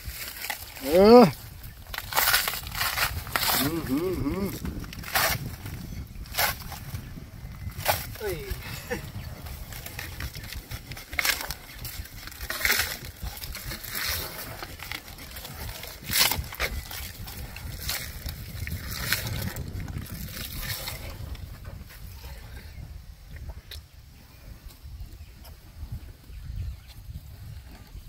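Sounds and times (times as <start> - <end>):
rustling and crunching of leaves: 0.0 - 21.6.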